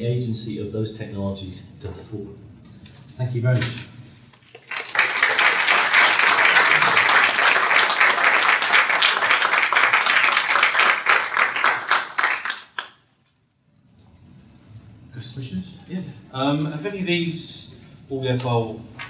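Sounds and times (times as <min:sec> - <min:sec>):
audience applauding: 0:04.5 - 0:13.0.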